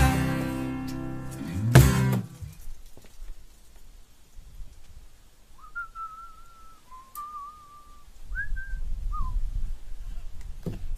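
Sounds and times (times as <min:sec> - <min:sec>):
man whistling: 0:05.6 - 0:09.5.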